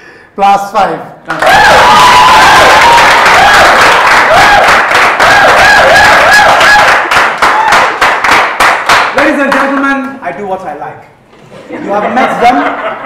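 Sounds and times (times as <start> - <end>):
audience applauding and cheering: 1.3 - 9.9.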